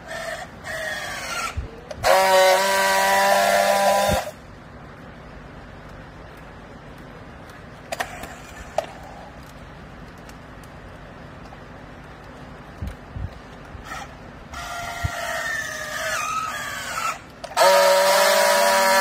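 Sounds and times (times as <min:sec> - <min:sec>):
strapping tool loud steady buzz: 0:00.0 - 0:04.4, 0:13.8 - 0:19.0
strapping tool motor whirring: 0:13.8 - 0:19.0.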